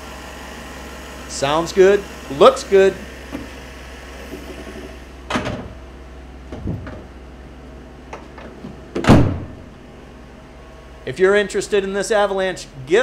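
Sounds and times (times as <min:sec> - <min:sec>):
steady low hum: 0:00.0 - 0:13.0
dull knocks: 0:06.5 - 0:07.1.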